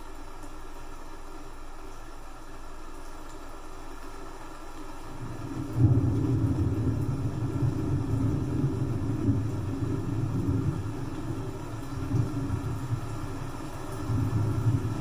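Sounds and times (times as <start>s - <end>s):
rain hissing: 0.0s - 15.0s
thunder rumbling: 5.2s - 15.0s.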